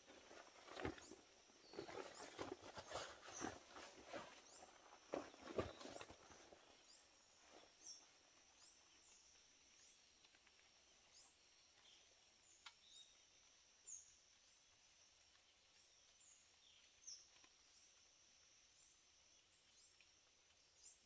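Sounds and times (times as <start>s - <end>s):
rustling handling noises: 0.0s - 6.8s
high insect hum: 0.0s - 21.0s.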